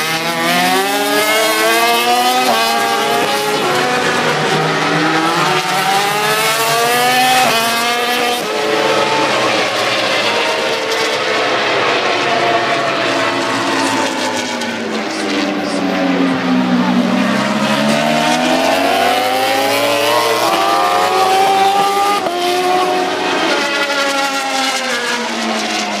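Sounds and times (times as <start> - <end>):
racing motorcycle engines revving: 0.0 - 26.0.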